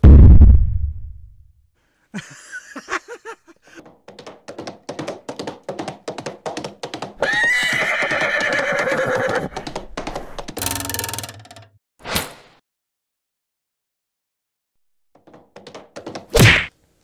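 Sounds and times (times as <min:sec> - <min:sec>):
horse hoofbeats clip-clop: 0:03.8 - 0:10.6
horse whinnying: 0:07.2 - 0:09.6.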